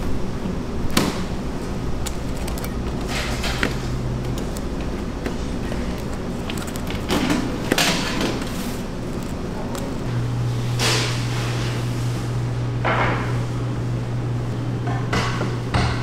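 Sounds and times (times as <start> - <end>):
kitchen hum: 0.0 - 16.0
bagels knocking and rustling in tray: 0.9 - 10.1.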